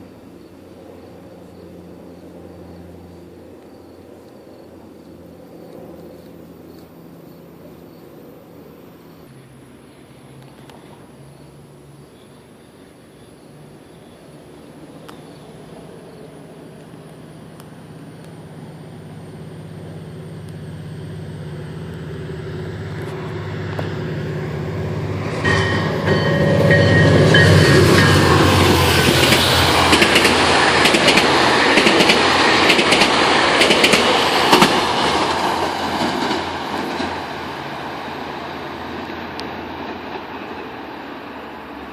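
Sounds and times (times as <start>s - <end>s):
locomotive engine drone: 0.0s - 41.9s
train wheels clattering on rails: 22.8s - 41.5s
high ringing tones: 23.9s - 29.8s.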